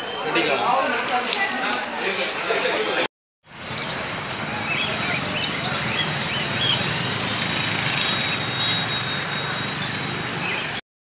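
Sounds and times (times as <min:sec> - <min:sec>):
vehicle engine rumbling: 0:03.5 - 0:10.4.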